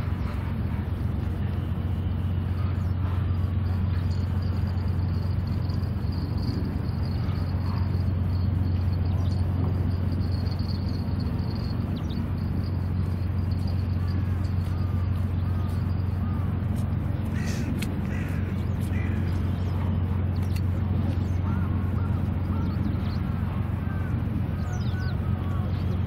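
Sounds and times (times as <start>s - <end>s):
outdoor background hum and rumble: 0.0s - 26.0s.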